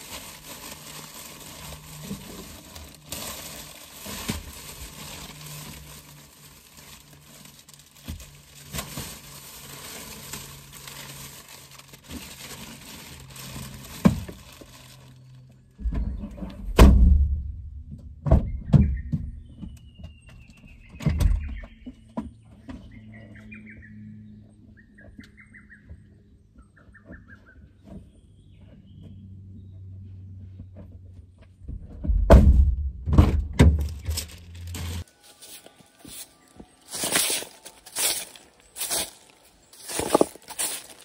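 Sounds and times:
songbirds chirping: 14.7s - 16.8s, 17.9s - 32.0s, 35.0s - 41.0s
heavy thuds: 15.8s - 19.4s, 31.7s - 34.0s
brush sweeping stone: 35.2s - 41.0s.

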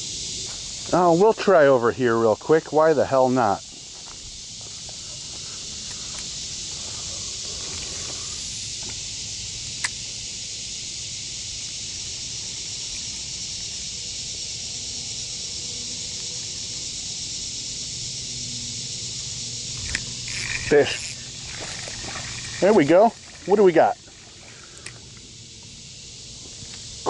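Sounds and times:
shrill insect chorus: 0.0s - 27.0s
sharp click: 9.8s - 10.0s.

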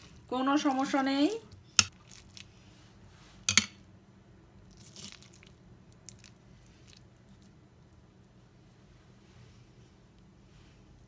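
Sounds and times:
avocado squishing: 4.7s - 7.6s.

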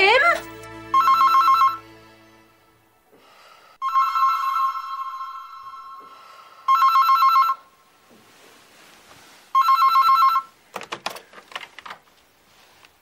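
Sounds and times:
telephone ringing with warbling trill: 0.9s - 1.8s, 3.8s - 6.1s, 6.7s - 7.6s, 9.6s - 10.5s.

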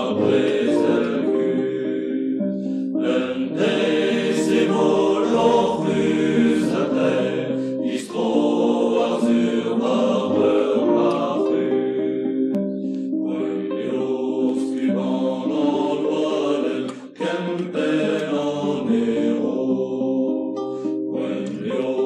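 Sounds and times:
group singing in chorus: 0.0s - 22.0s
backing music: 2.4s - 19.6s.

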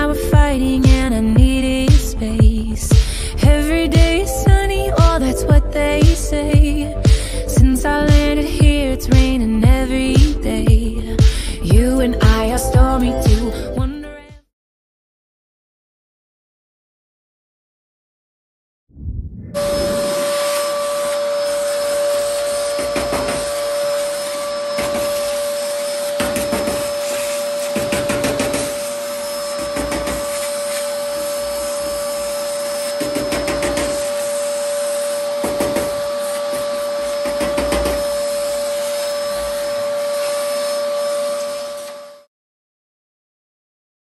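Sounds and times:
vacuum cleaner motor whining: 19.6s - 42.3s.

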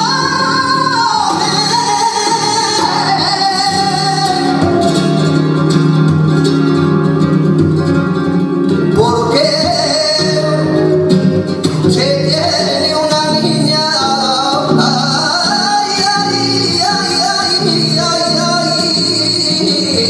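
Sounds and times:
man singing long sliding notes: 0.0s - 5.7s, 12.0s - 20.0s
flamenco guitar: 0.0s - 20.0s.

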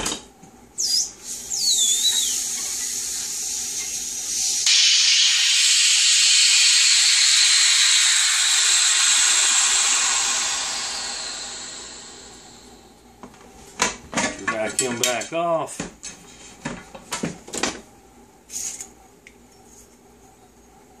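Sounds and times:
short falling whistles: 0.8s - 12.7s
air hissing through valve: 0.8s - 13.1s.

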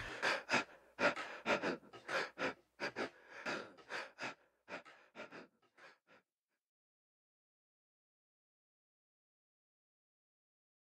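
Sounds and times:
person panting: 0.0s - 6.2s.

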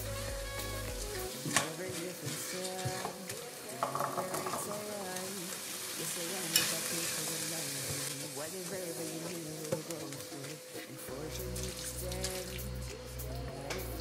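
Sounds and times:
onions sizzling in a frying pan: 1.1s - 11.1s
spatula stirring and scraping: 1.3s - 4.7s.

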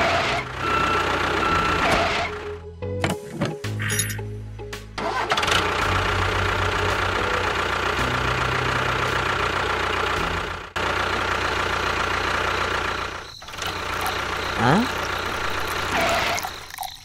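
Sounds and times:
tractor engine idling with knocking: 0.0s - 2.5s, 5.0s - 16.0s.

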